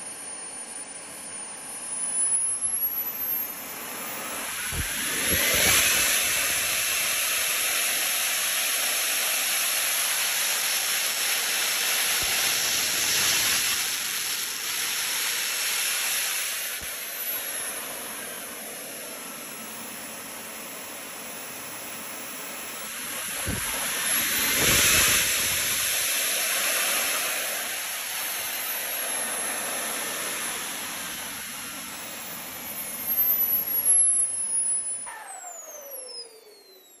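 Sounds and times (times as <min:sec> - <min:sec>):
model turbojet whine: 0:00.0 - 0:37.0
rushing jet hiss: 0:03.6 - 0:34.1
burst of loud noise: 0:03.9 - 0:18.5.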